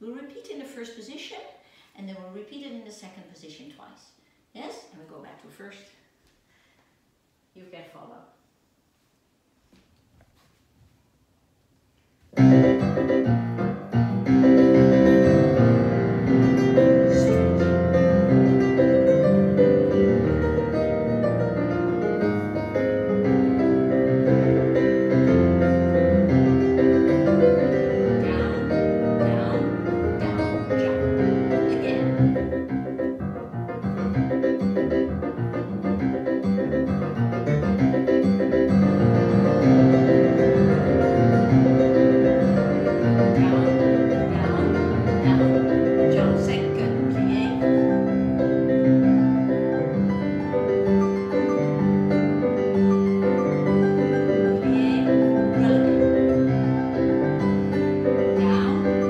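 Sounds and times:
solo piano playing: 12.3 - 59.0.

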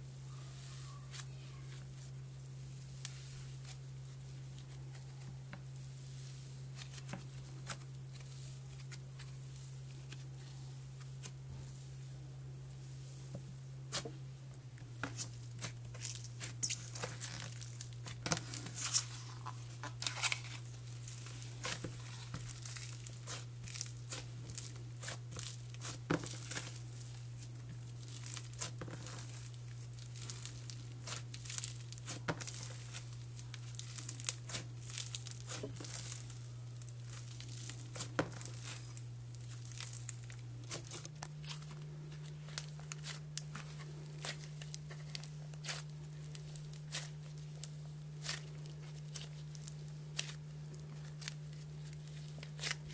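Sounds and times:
steady low hum: 0.0 - 52.9
slime crackling and snapping: 15.2 - 52.9.

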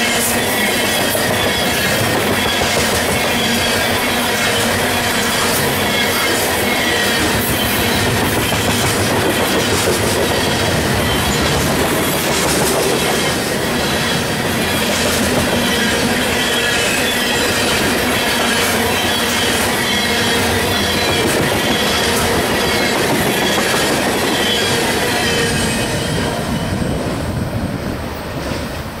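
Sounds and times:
high-pitched wheel squeal: 0.0 - 8.8, 13.1 - 26.8
train rumble: 0.0 - 29.0
train wheels clicking over rails: 0.0 - 29.0.

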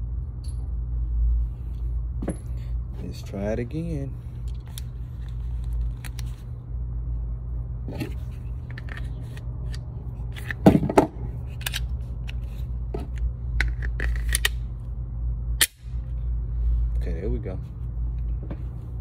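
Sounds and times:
steady low hum: 0.0 - 19.0
pistol slide metallic clicks: 14.0 - 14.6, 15.6 - 15.9.

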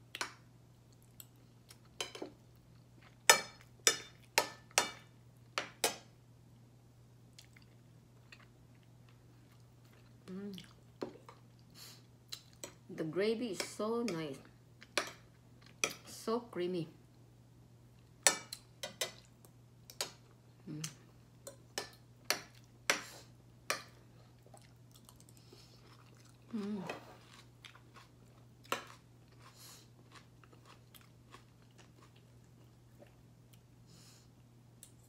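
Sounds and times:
person humming mmm: 20.6 - 21.0, 26.5 - 27.2
person chewing and lip-smacking: 24.4 - 28.1.

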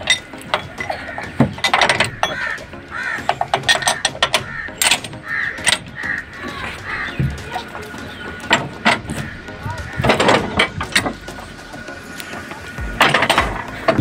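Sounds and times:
lever frame clicks and clanks: 0.0 - 5.9
crows cawing: 0.1 - 12.4.

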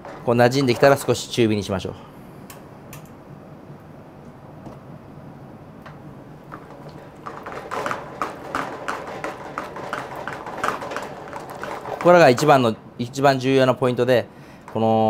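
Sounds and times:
spatula tapping and scraping pan: 6.5 - 12.6.

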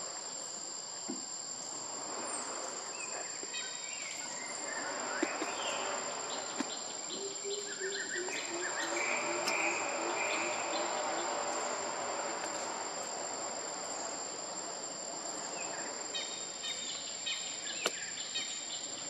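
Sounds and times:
insects droning: 0.0 - 19.0
bird calls: 2.9 - 11.5, 15.6 - 19.0
rapid repeated bird notes: 3.0 - 12.0.

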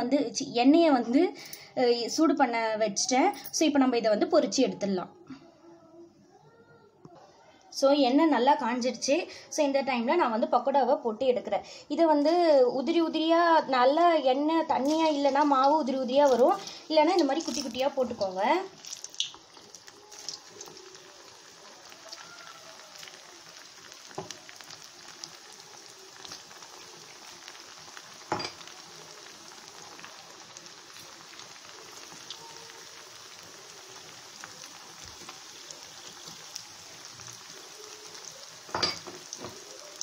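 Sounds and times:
batter sizzling in hot oil: 14.7 - 40.0.

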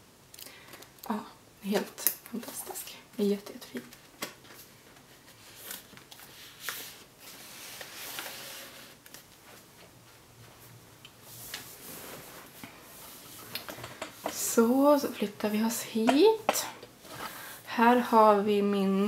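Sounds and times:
book scraping against books: 5.0 - 9.2.

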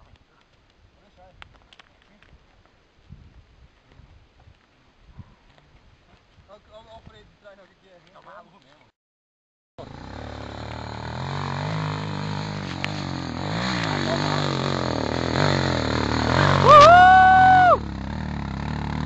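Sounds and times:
dirt bike engine revving: 9.8 - 19.0.

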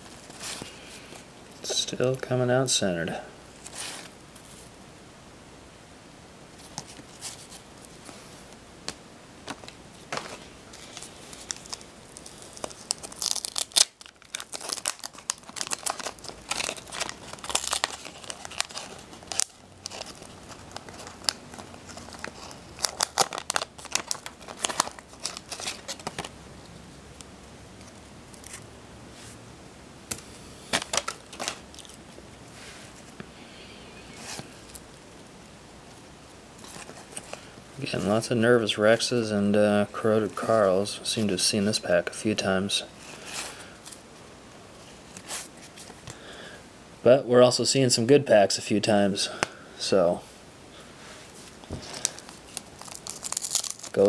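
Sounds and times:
wax paper wrapper tearing and crumpling: 10.8 - 26.4, 51.9 - 54.0.

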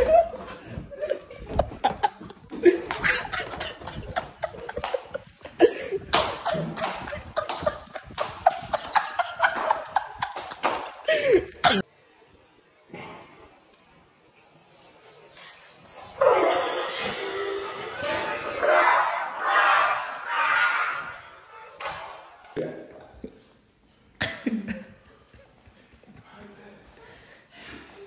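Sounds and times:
people laughing and shouting: 0.0 - 11.8, 16.2 - 22.6
people coughing: 1.9 - 11.9, 24.2 - 25.0.

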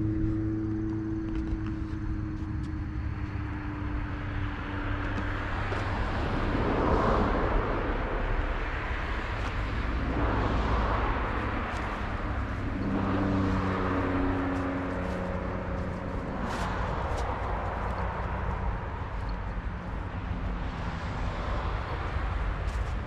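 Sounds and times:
low engine hum: 0.0 - 23.0.

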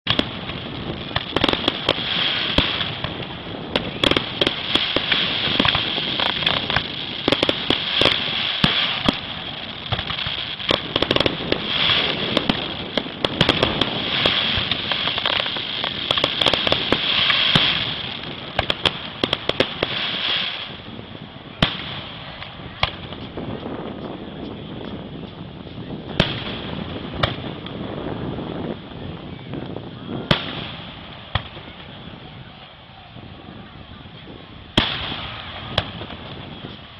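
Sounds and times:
fireworks bursting and crackling: 0.0 - 36.9
firework sharp bang: 21.5 - 23.7, 26.1 - 27.8, 30.2 - 32.0, 34.8 - 36.8.

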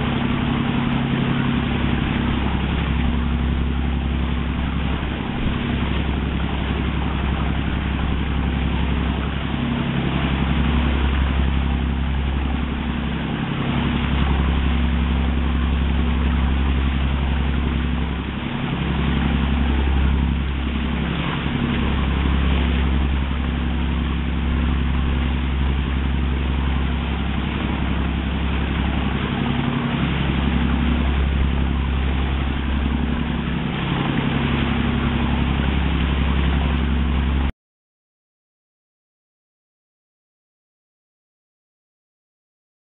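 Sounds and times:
boat engine running: 0.0 - 37.5
water rushing past hull: 0.0 - 37.5.

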